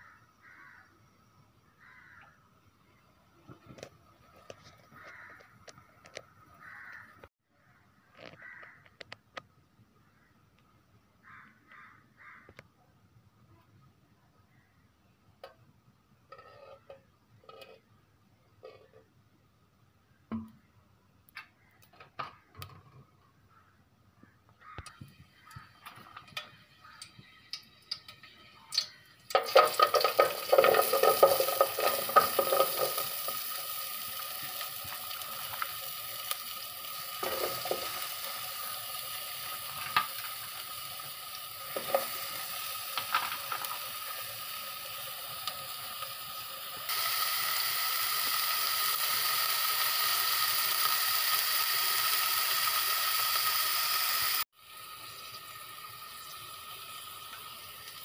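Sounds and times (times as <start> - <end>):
onions sizzling in hot oil: 25.3 - 58.0.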